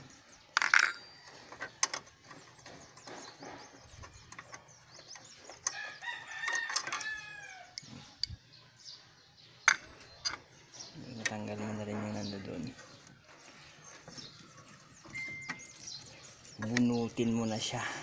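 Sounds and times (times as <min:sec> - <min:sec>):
rooster crowing: 0:05.7 - 0:07.8.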